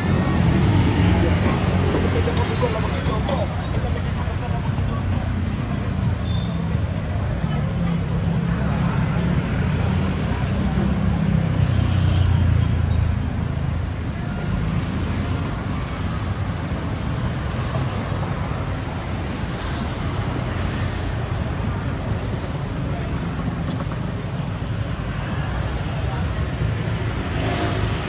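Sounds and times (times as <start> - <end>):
people talking: 0.0 - 11.8, 21.8 - 24.6, 25.2 - 27.7
road traffic rumble: 0.0 - 28.0.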